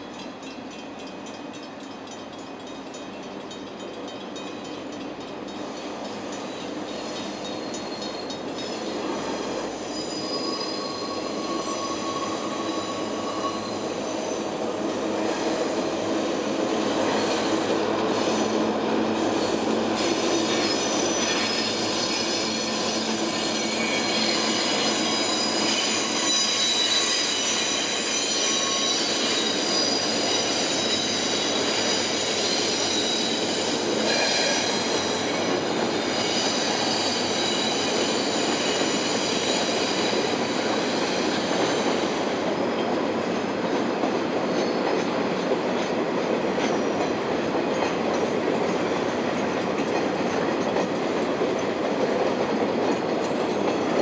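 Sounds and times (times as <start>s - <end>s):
high wheel squeal: 6.4s - 14.6s, 15.2s - 42.6s, 44.5s - 44.9s.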